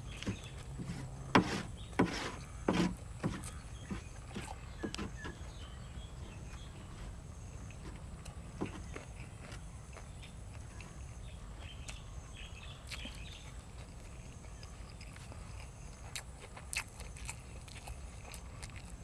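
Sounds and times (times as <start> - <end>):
person chewing: 6.5 - 12.1, 12.8 - 19.0.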